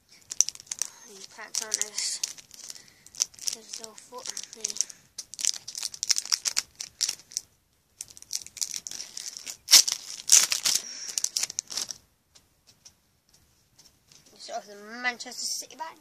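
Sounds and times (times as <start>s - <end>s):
foil wrapper crinkling and tearing: 0.0s - 12.0s.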